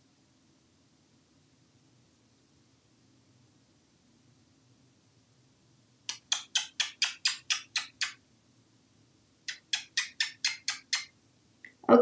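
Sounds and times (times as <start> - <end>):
quick sharp clicks: 6.1 - 8.2, 9.4 - 11.1.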